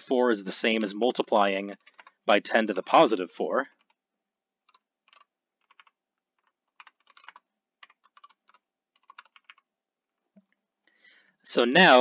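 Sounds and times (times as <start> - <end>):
faint typing on keyboard: 0.8 - 4.0, 4.6 - 10.6.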